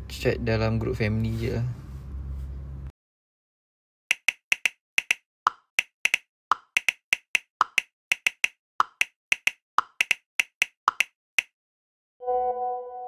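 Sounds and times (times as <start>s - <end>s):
phone keyboard typing clicks: 4.1s - 11.5s.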